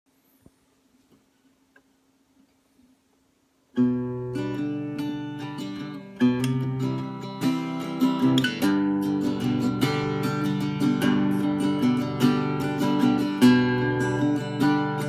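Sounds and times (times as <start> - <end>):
acoustic guitar strumming: 3.8 - 15.0.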